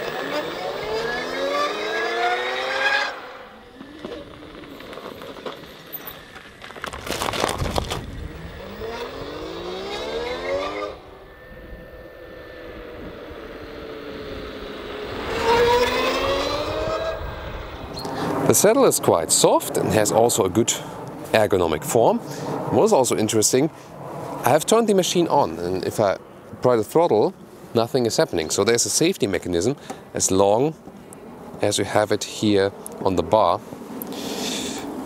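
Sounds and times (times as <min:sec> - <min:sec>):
electric motorcycle motor whining: 0:00.0 - 0:18.1.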